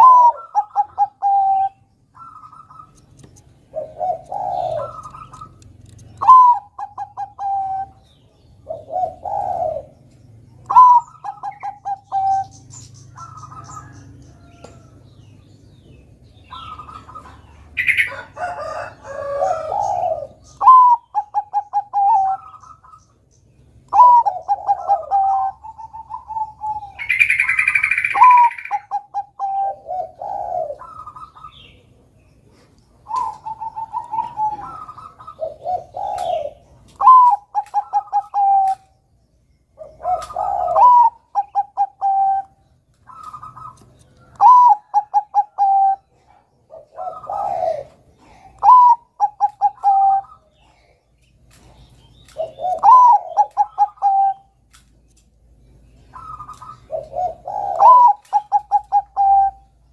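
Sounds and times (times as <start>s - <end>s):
dove cooing: 0.0s - 23.1s, 23.8s - 39.0s, 39.7s - 54.6s, 55.8s - 59.9s.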